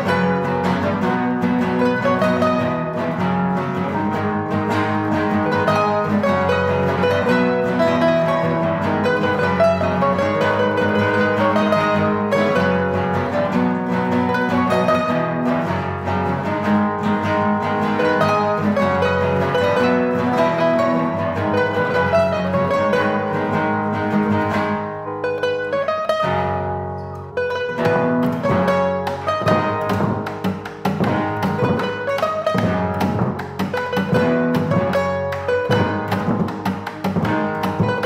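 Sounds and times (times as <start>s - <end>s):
guitar ensemble playing: 0.0s - 38.0s.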